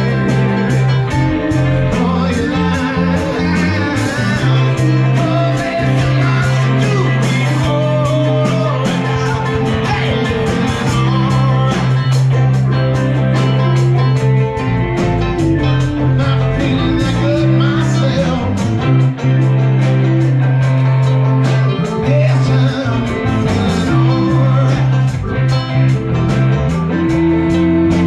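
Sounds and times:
person singing: 0.0s - 13.6s, 15.5s - 19.2s, 21.0s - 25.9s
live band playing: 0.0s - 28.0s.

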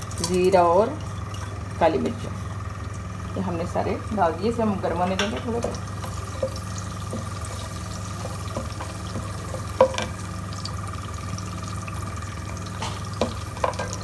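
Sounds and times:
steady hum: 0.0s - 14.0s
spices sizzling in oil: 4.8s - 14.0s
spatula tapping pan: 5.2s - 10.2s.

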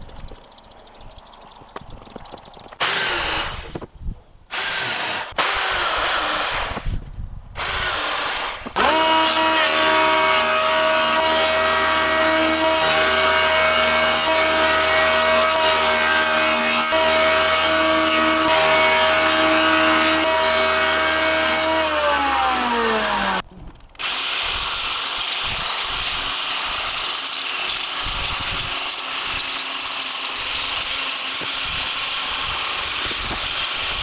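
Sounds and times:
angle grinder scouring wood: 2.8s - 3.8s, 4.5s - 7.0s, 7.6s - 23.4s, 24.0s - 34.0s
jointer planer humming and whining: 7.6s - 23.4s, 24.0s - 34.0s.

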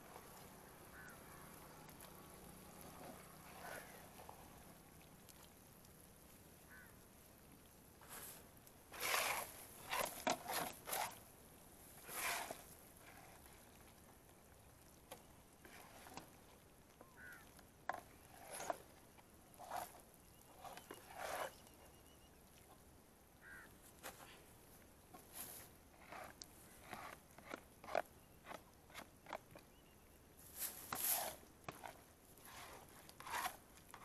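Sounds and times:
plastic spatula scraping a pan: 12.0s - 13.4s, 17.9s - 18.9s, 19.6s - 21.8s, 30.6s - 34.0s.

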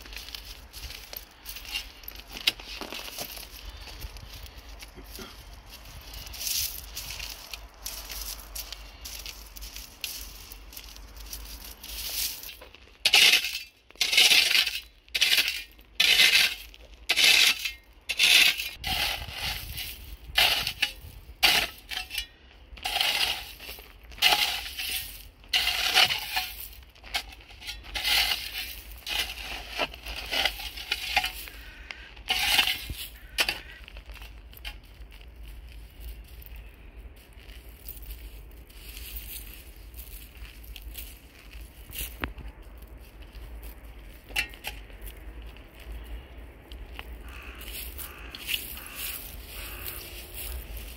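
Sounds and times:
spade scraping gravelly ground: 0.0s - 50.9s.

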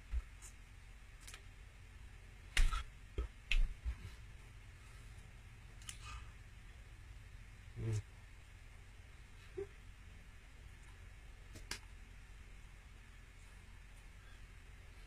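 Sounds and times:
faint room hum: 0.0s - 15.0s
hands thumping the chest: 2.5s - 4.1s.

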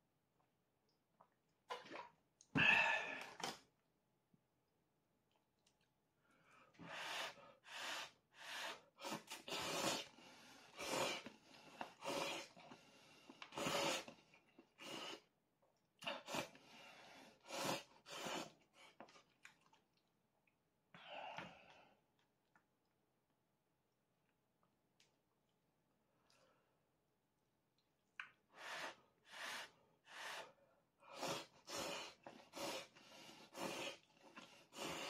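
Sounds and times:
person slurping noodles: 6.9s - 12.8s, 13.4s - 15.3s, 17.3s - 18.6s, 31.1s - 35.0s.

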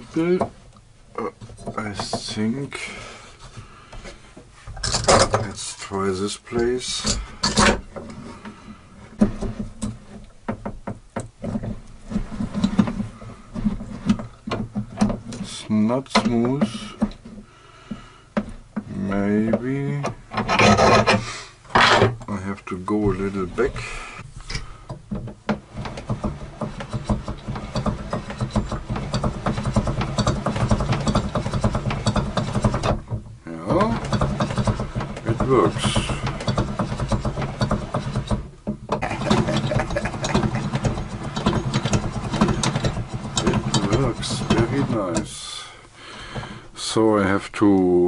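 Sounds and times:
clamps knocking and clicking: 1.4s - 2.4s, 4.8s - 5.5s, 7.0s - 8.2s, 9.2s - 13.0s, 13.6s - 15.4s, 24.4s - 45.3s
wooden gear teeth clattering: 24.6s - 45.4s.

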